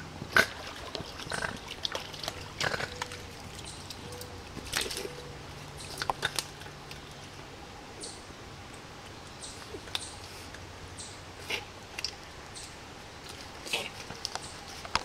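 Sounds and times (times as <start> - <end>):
dog splashing in water: 0.0 - 6.8
leaves rustling: 0.0 - 15.0.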